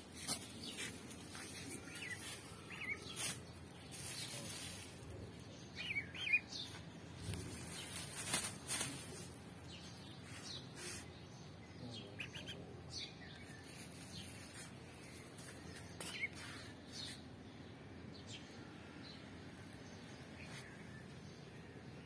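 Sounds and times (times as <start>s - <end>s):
brief rustles: 7.2s - 9.4s.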